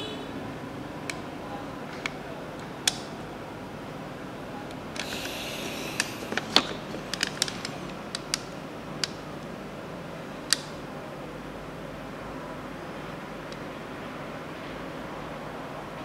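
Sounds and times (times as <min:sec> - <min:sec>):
steady low hiss: 0:00.0 - 0:16.0
light plastic clicks: 0:01.9 - 0:03.1, 0:06.0 - 0:09.2, 0:10.5 - 0:10.8.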